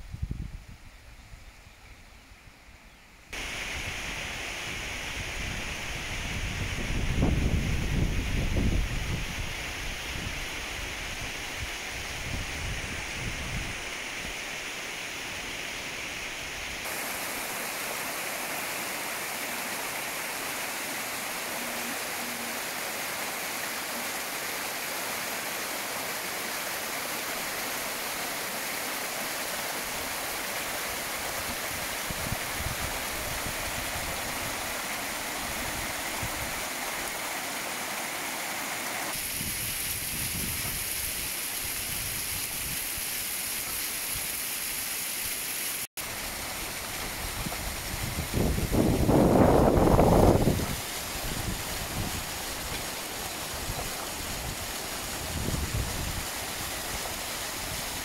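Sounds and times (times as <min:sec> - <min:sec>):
waterfall rushing over rocks: 0:03.4 - 0:58.0
wind buffeting microphone: 0:05.2 - 0:10.5, 0:31.4 - 0:34.7, 0:47.0 - 0:56.3.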